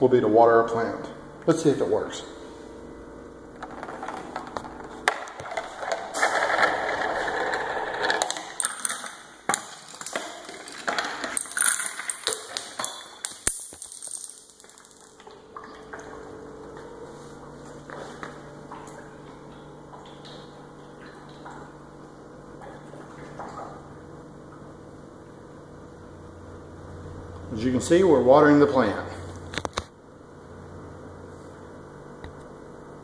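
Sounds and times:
marble rolling down slides: 3.6s - 9.2s
dominoes clicking and clacking: 10.6s - 15.1s.

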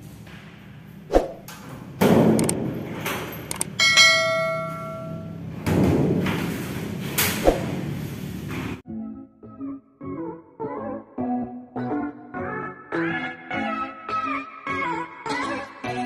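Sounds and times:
doors and latch rattling: 2.0s - 5.0s
bell-like chime: 3.8s - 5.3s.

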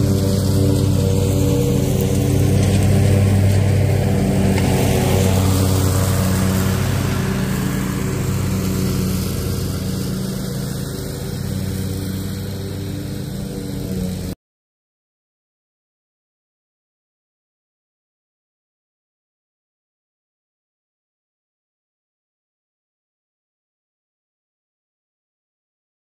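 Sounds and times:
riding mower engine running: 0.0s - 14.4s.

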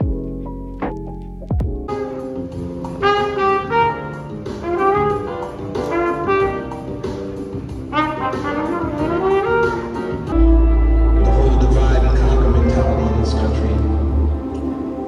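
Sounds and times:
trumpet playing a melody: 2.9s - 14.4s.

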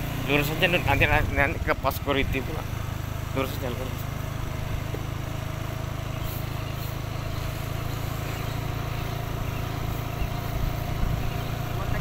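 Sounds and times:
scooter engine running: 0.0s - 12.0s.

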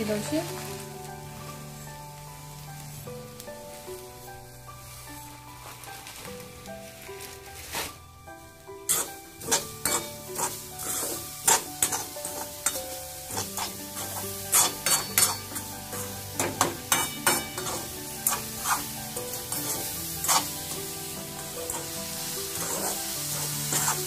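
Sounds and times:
spoon scraping metal pan: 8.9s - 20.8s, 21.4s - 24.0s.

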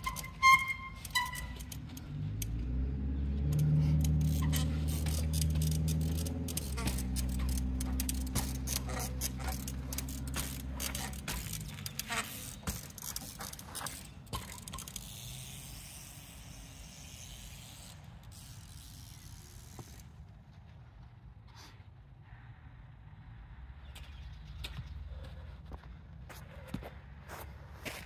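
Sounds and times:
bicycle freehub ratchet clicking: 0.0s - 2.7s, 3.3s - 20.2s.

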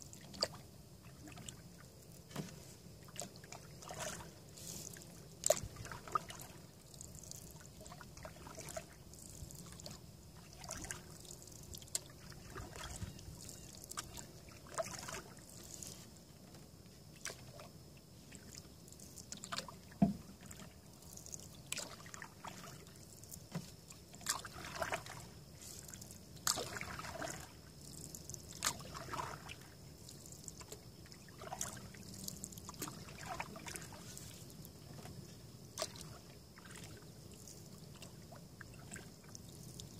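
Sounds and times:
paddle splashing and dripping: 0.0s - 39.9s
water trickling: 3.0s - 16.0s, 18.3s - 35.1s.

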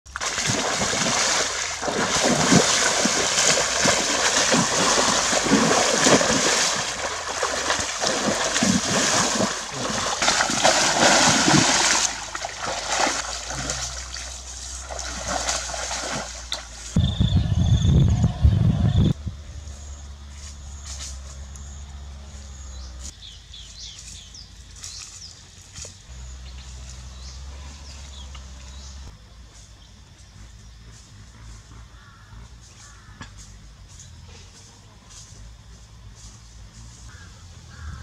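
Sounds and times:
person wading through water: 0.1s - 17.0s
steady low rumble: 0.8s - 22.0s.

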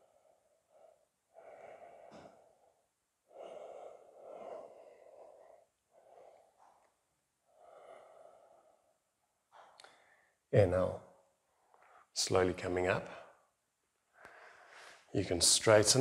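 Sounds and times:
person breathing through nose: 0.0s - 6.8s, 7.5s - 9.0s.

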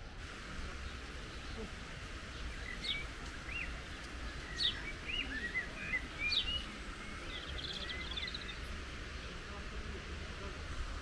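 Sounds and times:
low background noise: 0.0s - 11.0s
songbirds chirping and whistling: 0.6s - 9.4s.

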